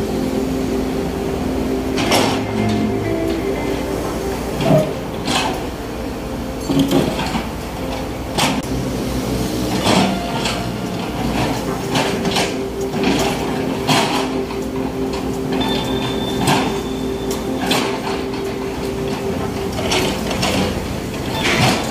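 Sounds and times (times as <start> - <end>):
excavator diesel engine and hydraulics: 0.0 - 21.9.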